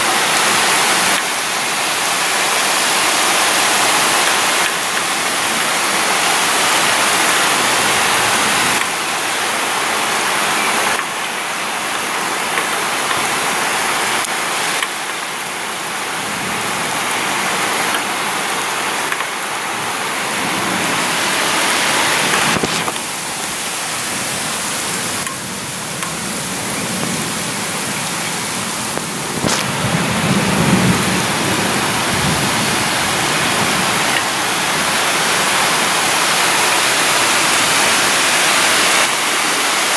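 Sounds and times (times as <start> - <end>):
heavy rain falling: 0.0 - 39.9
thunder rumbling: 28.8 - 34.8.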